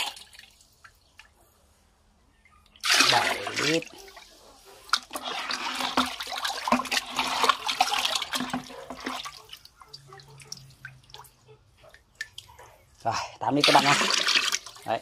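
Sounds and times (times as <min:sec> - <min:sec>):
liquid splashing and sloshing: 0:00.0 - 0:01.4, 0:02.8 - 0:12.8, 0:13.6 - 0:15.0
scattered drips: 0:06.2 - 0:12.6.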